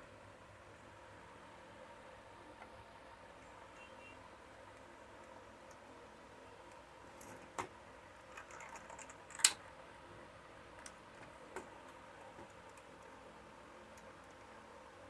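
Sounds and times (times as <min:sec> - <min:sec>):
fingers clicking and tapping plastic parts: 0:08.3 - 0:09.6.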